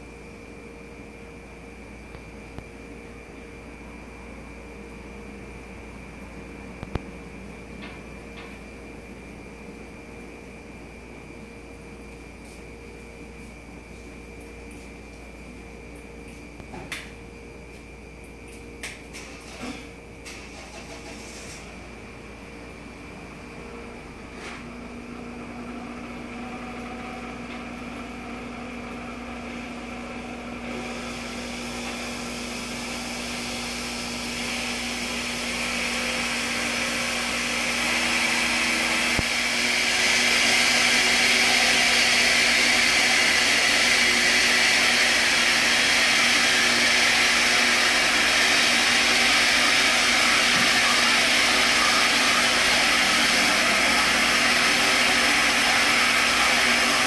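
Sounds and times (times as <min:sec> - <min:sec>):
immersion mixer motor whir: 0:25.9 - 0:57.0.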